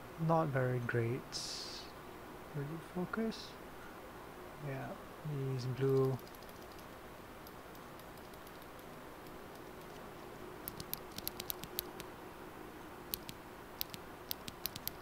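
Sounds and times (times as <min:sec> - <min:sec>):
mechanical keyboard switch clicks: 0:13.1 - 0:15.0.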